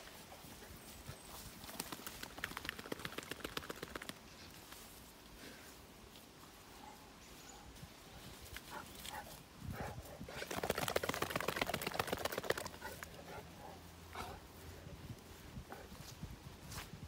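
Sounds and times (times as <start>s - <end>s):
dog shaking water off coat: 10.5s - 13.0s.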